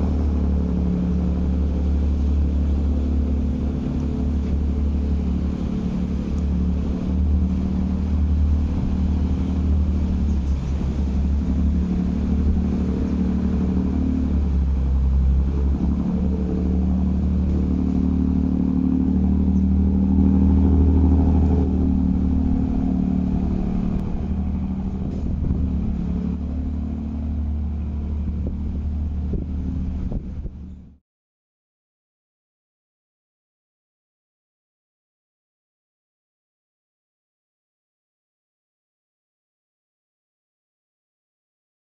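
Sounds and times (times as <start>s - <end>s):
water wash: 0.0s - 30.7s
ferry diesel engine humming: 0.0s - 31.0s.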